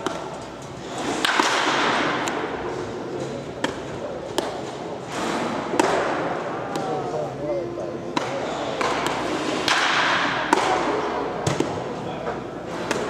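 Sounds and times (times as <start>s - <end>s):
baseballs smacking into gloves: 3.6s - 4.6s.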